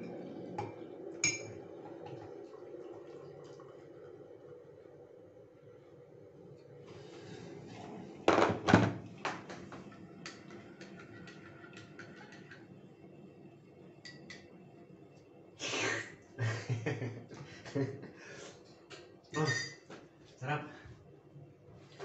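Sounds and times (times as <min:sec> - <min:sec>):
hot water pouring into mug: 0:00.0 - 0:08.3, 0:09.0 - 0:14.5
kettle set down thunks: 0:08.3 - 0:09.8.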